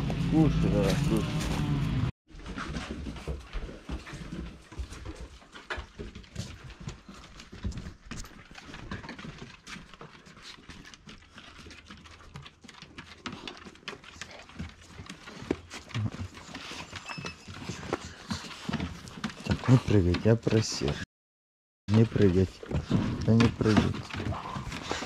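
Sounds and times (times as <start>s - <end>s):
dogs crunching bones: 4.1s - 20.6s.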